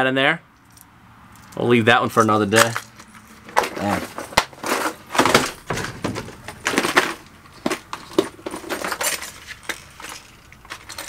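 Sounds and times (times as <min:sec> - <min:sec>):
plastic lures clattering in boxes: 0:03.5 - 0:11.0.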